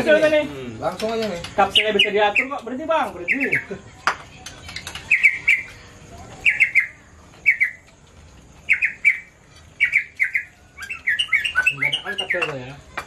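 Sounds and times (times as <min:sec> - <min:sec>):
bird calling high notes: 0:01.7 - 0:02.6, 0:03.2 - 0:03.7, 0:05.1 - 0:05.8, 0:06.4 - 0:07.9, 0:08.7 - 0:12.8.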